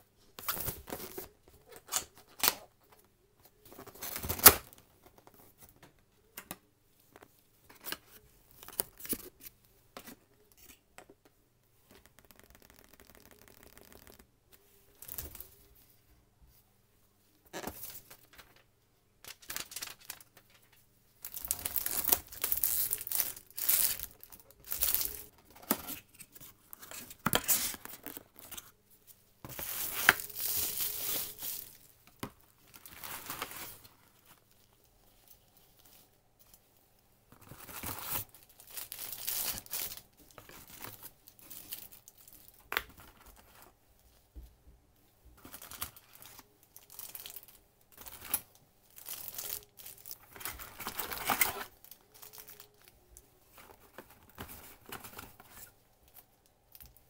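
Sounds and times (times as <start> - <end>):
paper rustling: 19.2 - 28.6
plastic bags crinkling: 19.3 - 25.3, 29.5 - 31.9, 37.4 - 43.6, 45.4 - 56.9.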